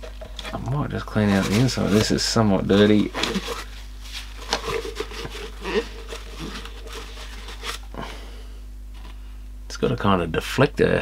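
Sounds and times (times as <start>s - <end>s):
plastic handling and rubbing: 0.0s - 8.1s
faint low hum: 0.0s - 11.0s.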